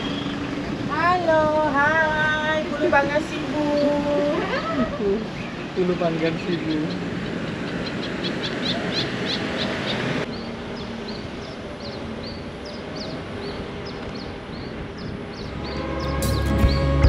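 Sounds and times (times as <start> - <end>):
bird chirping: 0.0 - 0.9, 5.2 - 17.0
car driving slowly: 0.0 - 17.0.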